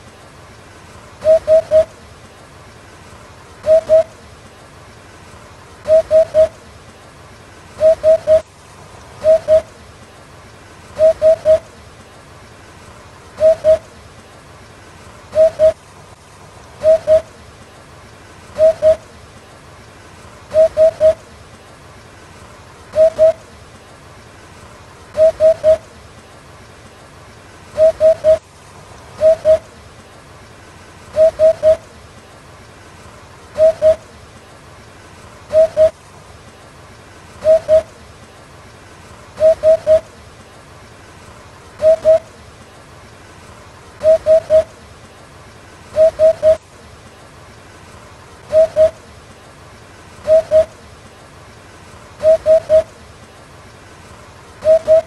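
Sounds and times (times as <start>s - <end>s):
hoopoe hooting song: 1.2s - 2.0s, 3.6s - 4.2s, 5.8s - 6.6s, 7.8s - 8.5s, 9.2s - 9.8s, 11.0s - 11.8s, 13.4s - 14.0s, 15.3s - 15.8s, 16.8s - 17.4s, 18.6s - 19.2s, 20.5s - 21.3s, 22.9s - 23.5s, 25.2s - 26.0s, 27.8s - 28.4s, 29.1s - 29.8s, 31.1s - 32.0s, 33.6s - 34.2s, 35.5s - 36.0s, 37.4s - 38.0s, 39.4s - 40.2s, 41.8s - 42.4s, 44.0s - 44.9s, 46.0s - 46.6s, 48.5s - 49.1s, 50.2s - 50.9s, 52.2s - 53.0s, 54.6s - 55.0s.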